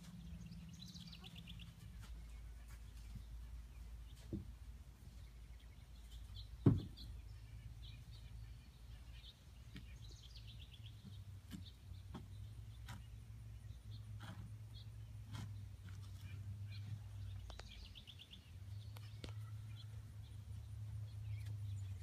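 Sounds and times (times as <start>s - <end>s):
small birds chirping: 0.0s - 22.0s
sharp thump: 6.6s - 7.0s.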